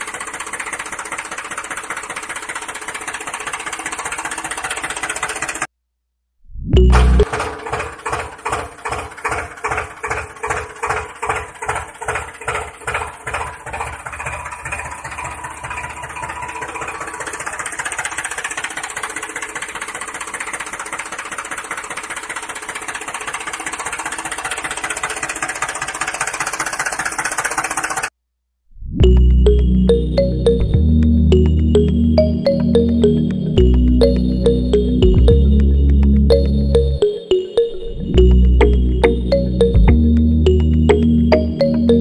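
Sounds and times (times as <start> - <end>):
tractor engine chugging: 0.0 - 5.7, 6.8 - 28.1.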